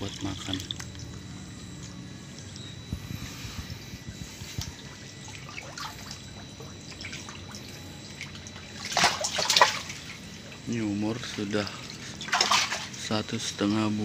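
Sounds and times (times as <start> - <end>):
water trickling and dripping: 0.0 - 1.2
loud splashing in shallow water: 12.3 - 12.9.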